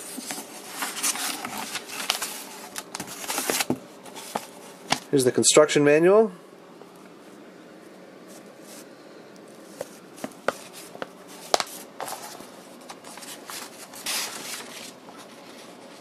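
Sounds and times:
paper rustling: 0.0 - 5.1, 9.7 - 16.0.

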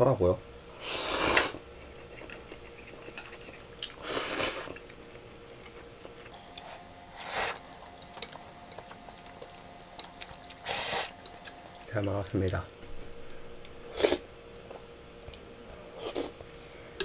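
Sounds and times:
person slurping noodles: 0.8 - 1.6, 4.0 - 4.8
chewing: 1.7 - 12.7.

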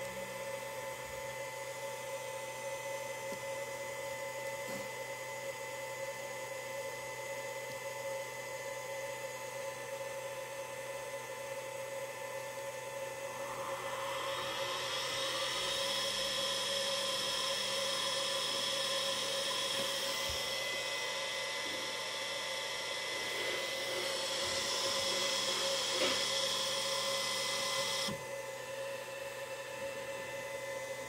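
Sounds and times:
servo motor whining: 13.3 - 28.3.

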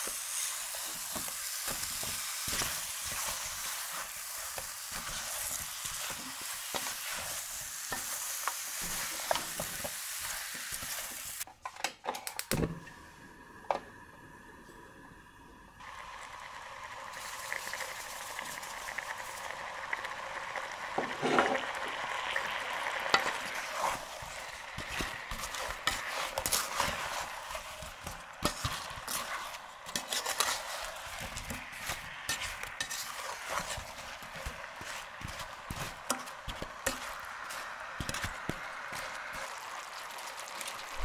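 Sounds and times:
apples sizzling in a saucepan: 0.0 - 11.5, 15.2 - 41.0
wooden spatula scraping a pan: 0.0 - 11.5, 21.0 - 21.7, 23.1 - 41.0.

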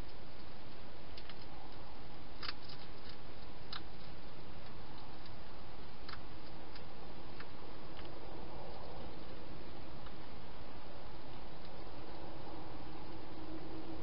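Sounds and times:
hedgehog crunching dry food: 0.0 - 10.2.

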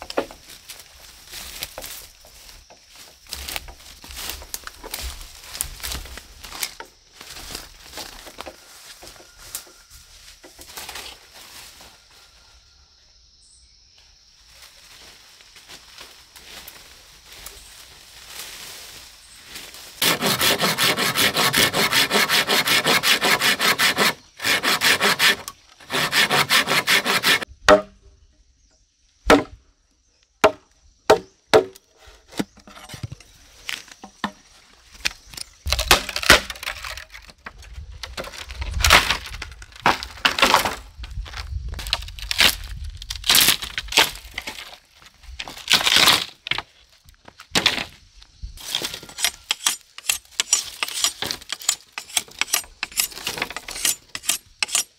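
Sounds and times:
blade sawing through bamboo: 20.0 - 27.5, 35.7 - 37.3, 48.6 - 54.9
knocks on bamboo: 27.6 - 28.0, 29.3 - 29.6, 30.4 - 31.8
bamboo cracking and splintering: 32.4 - 48.0, 48.6 - 54.9.

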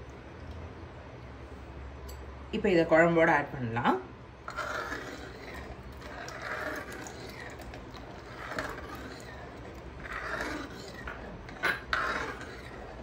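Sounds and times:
metal ladle scraping pot: 4.4 - 13.0.

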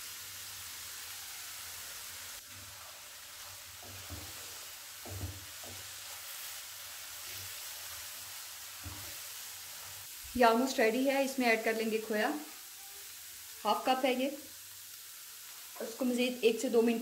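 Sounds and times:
food sizzling in a wok: 0.0 - 17.0
spatula knocking against pan: 3.8 - 5.9.

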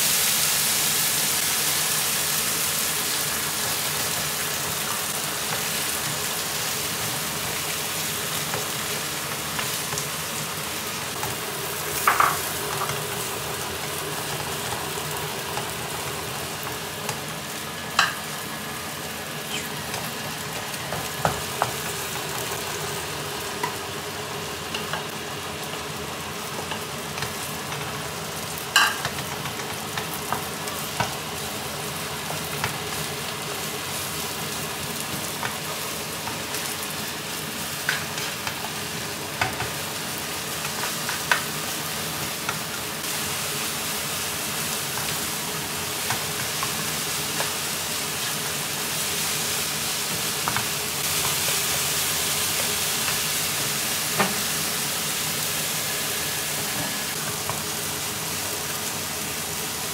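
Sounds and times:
food sizzling in a pan: 0.0 - 59.9.

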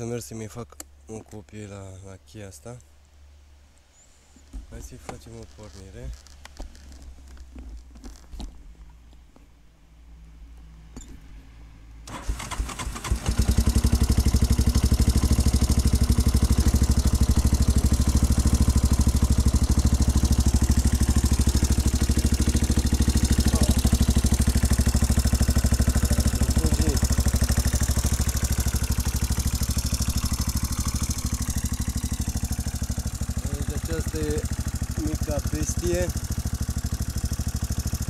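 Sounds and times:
quad engine starting and idling: 12.0 - 38.0.

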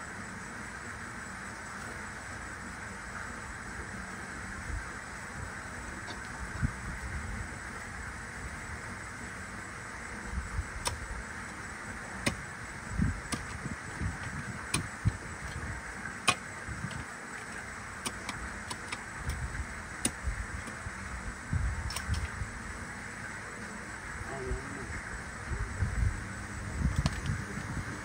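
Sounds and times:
steady hiss: 0.0 - 28.0
wind buffeting microphone: 4.5 - 8.9, 12.0 - 17.2, 19.2 - 22.8, 24.4 - 28.0.

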